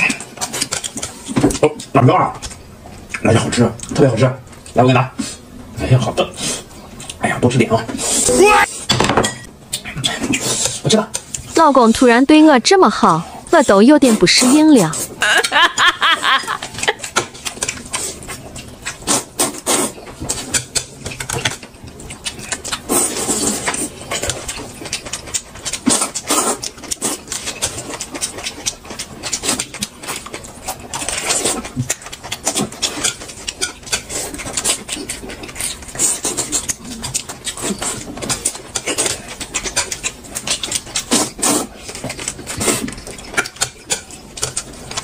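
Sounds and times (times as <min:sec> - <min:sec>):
chewing and smacking: 0:00.0 - 0:04.8, 0:06.0 - 0:07.9, 0:16.2 - 0:45.0.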